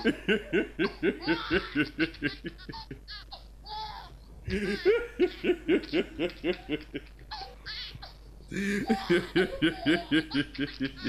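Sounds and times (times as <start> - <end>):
man laughing hard: 0.0 - 3.2, 4.5 - 7.1, 8.5 - 11.0.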